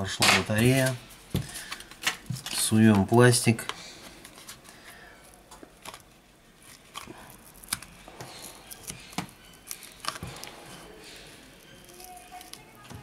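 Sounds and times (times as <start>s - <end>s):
plastic card prying battery: 6.7s - 10.6s.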